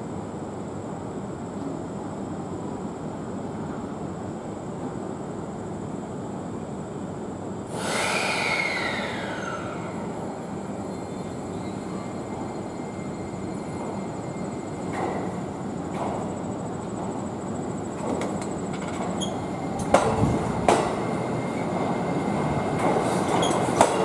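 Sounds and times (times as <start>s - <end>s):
train rumbling: 7.2s - 24.0s
brake squeal: 7.8s - 10.1s.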